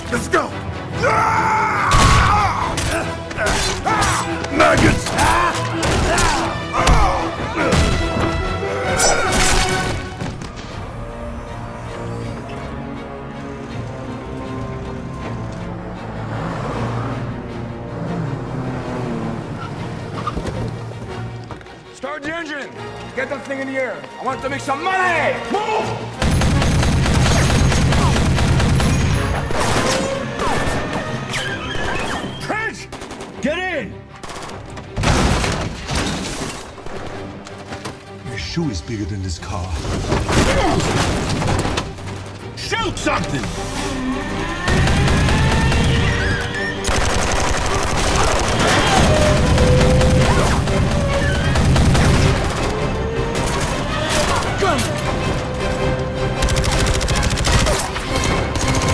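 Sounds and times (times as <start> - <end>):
film music: 0.0 - 58.9
automatic gunfire: 26.2 - 29.0, 46.9 - 52.7, 56.4 - 58.9.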